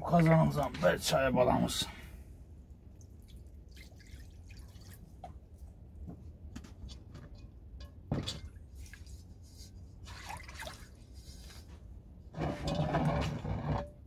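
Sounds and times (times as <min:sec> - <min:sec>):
water sloshing in pot: 0:02.8 - 0:06.0, 0:06.9 - 0:14.0.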